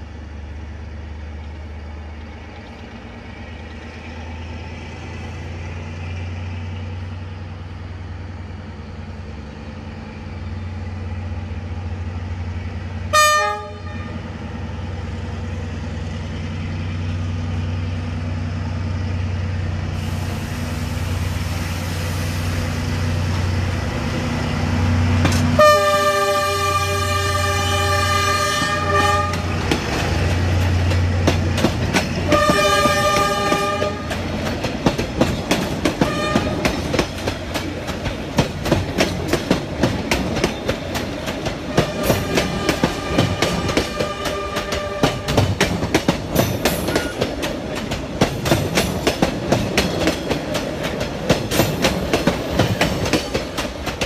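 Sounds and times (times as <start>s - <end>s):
locomotive engine rumble: 0.0s - 54.0s
train horn blast: 13.1s - 14.3s, 25.5s - 29.6s, 32.3s - 34.2s, 36.0s - 36.8s, 41.7s - 45.5s.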